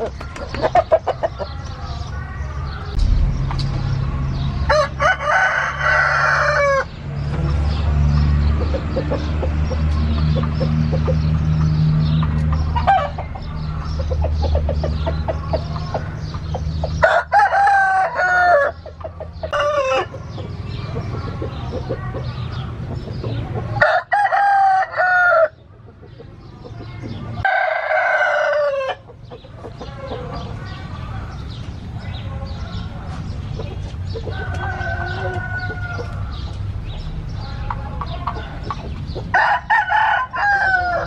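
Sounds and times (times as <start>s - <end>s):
roosters crowing: 0.0s - 7.8s, 8.5s - 22.6s, 23.6s - 25.7s, 27.2s - 31.4s, 32.4s - 41.0s
chickens clucking: 0.0s - 41.0s
steady low hum: 2.8s - 5.2s.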